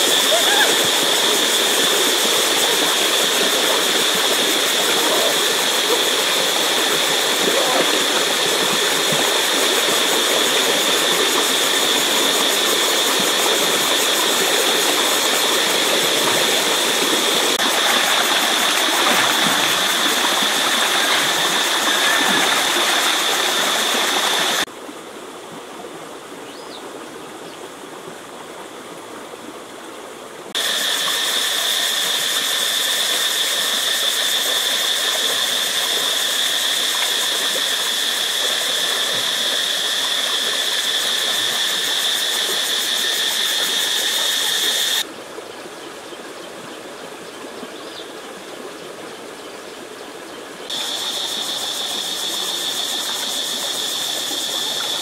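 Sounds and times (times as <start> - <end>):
continuous high-pitched whine: 30.6 - 45.1.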